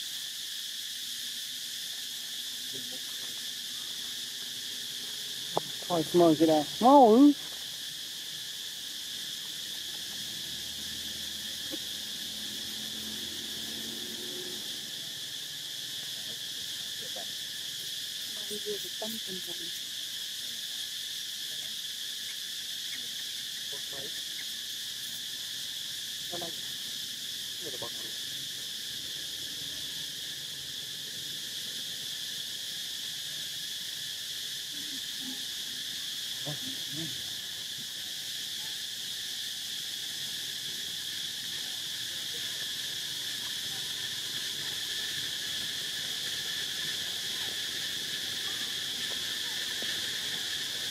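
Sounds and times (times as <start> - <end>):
insects buzzing: 0.0 - 50.9.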